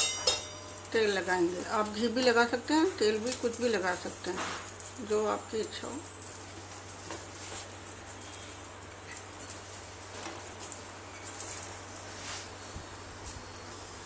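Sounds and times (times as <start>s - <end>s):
oil sizzling on flatbread: 0.0s - 14.0s.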